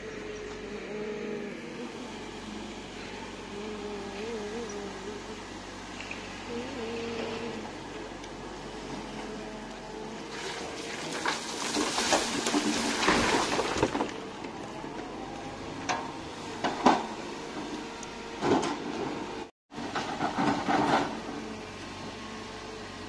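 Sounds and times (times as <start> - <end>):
excavator running: 0.0 - 23.0
falling earth rattling: 7.1 - 17.7.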